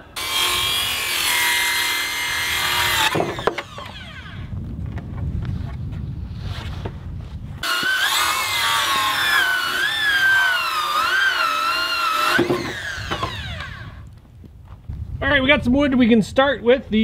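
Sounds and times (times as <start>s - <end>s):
circular saw cutting wood: 0.0s - 4.5s, 7.6s - 14.0s.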